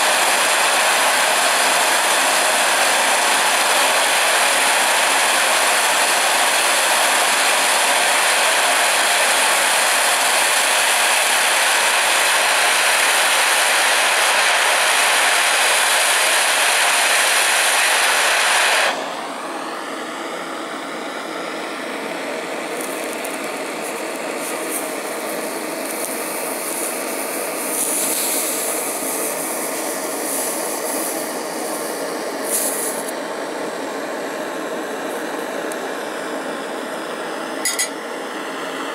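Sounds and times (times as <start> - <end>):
gas torch hissing: 0.0 - 20.6, 22.2 - 38.8
hot blade hissing in onion: 22.8 - 33.1.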